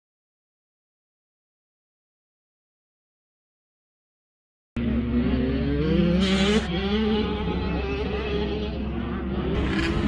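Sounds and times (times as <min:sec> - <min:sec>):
motocross motorcycle engines revving: 0:04.8 - 0:10.0.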